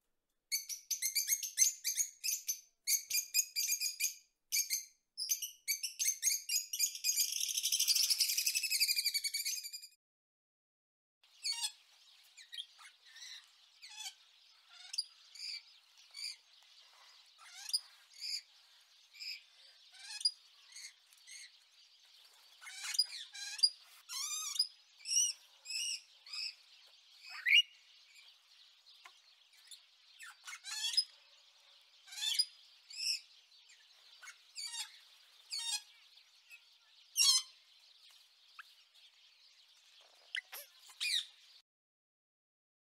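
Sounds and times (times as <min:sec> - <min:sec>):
parrots squawking and chirping: 0:11.4 - 0:18.5, 0:19.2 - 0:21.5, 0:22.5 - 0:26.6, 0:27.2 - 0:27.7, 0:29.5 - 0:31.2, 0:32.0 - 0:33.2, 0:34.1 - 0:35.9, 0:37.2 - 0:37.6, 0:40.2 - 0:41.4.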